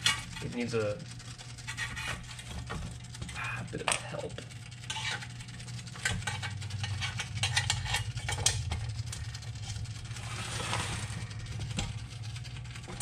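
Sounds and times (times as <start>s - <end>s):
steady low hum: 0.0s - 13.0s
sliding scrape: 1.6s - 2.6s, 4.9s - 5.3s, 9.6s - 11.7s.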